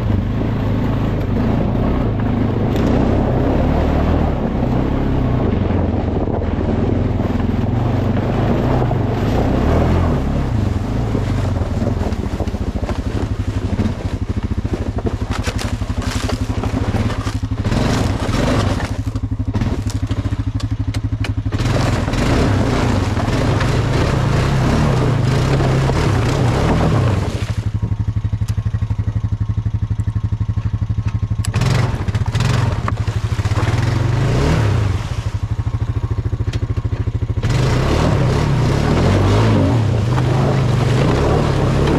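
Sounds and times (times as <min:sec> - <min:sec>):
atv engine running: 0:00.0 - 0:41.9
brush scraping and clattering: 0:11.1 - 0:20.3.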